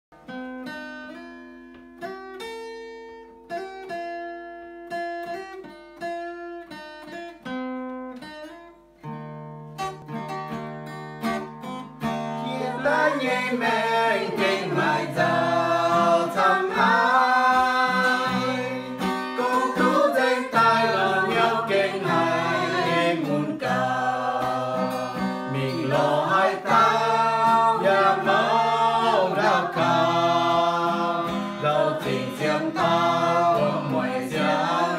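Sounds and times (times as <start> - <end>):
acoustic guitar: 0.1 - 34.9
group of people singing: 12.4 - 34.9.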